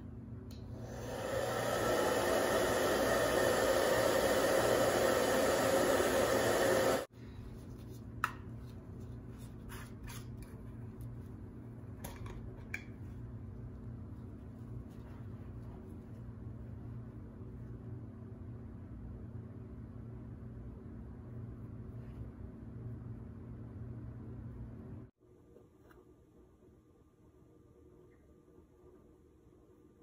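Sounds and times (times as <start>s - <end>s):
hair dryer blowing: 0.8s - 7.1s.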